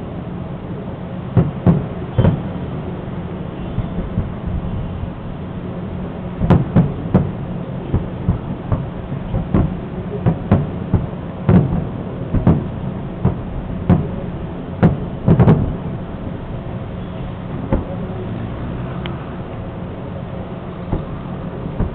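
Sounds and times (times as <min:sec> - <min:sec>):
steady low hum: 0:00.0 - 0:21.9
firework shells bursting: 0:01.4 - 0:02.6, 0:06.4 - 0:16.0.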